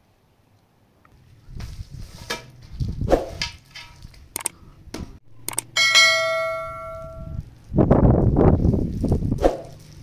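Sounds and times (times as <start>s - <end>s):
sharp clicks: 4.3s - 4.6s, 5.5s - 5.7s
bell-like notification ding: 5.8s - 7.3s.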